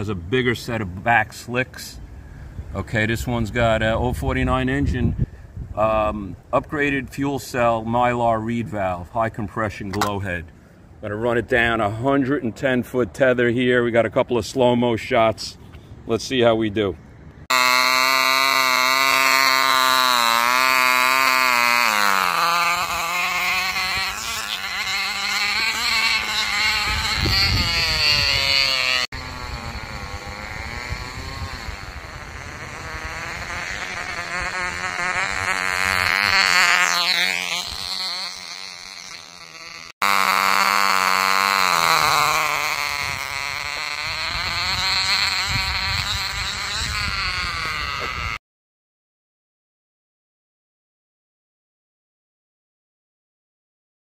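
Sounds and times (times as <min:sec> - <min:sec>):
model glow engine high-pitched whine: 0:17.5 - 0:48.4.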